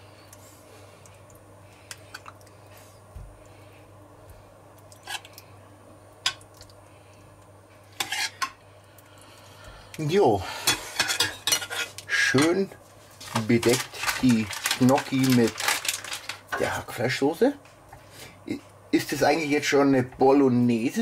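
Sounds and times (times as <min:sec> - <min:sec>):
person speaking: 0:12.1 - 0:17.6.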